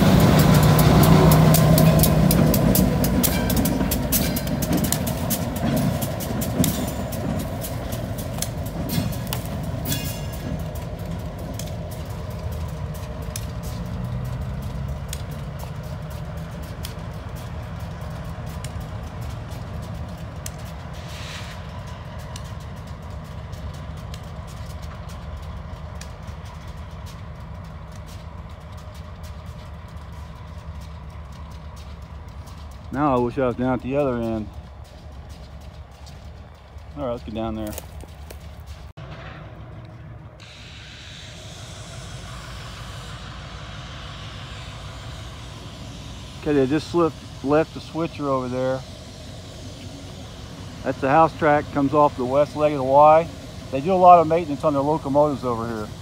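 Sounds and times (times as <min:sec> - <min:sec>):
steady rushing hiss: 0:00.0 - 0:39.0, 0:40.3 - 0:56.0
diesel locomotive engine rumble: 0:00.0 - 0:56.0
brief hiss: 0:21.0 - 0:21.7, 0:40.4 - 0:51.0.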